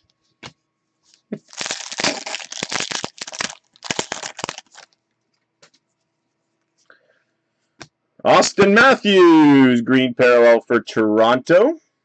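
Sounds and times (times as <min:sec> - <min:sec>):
foil wrapper tearing and crinkling: 0:01.4 - 0:05.0.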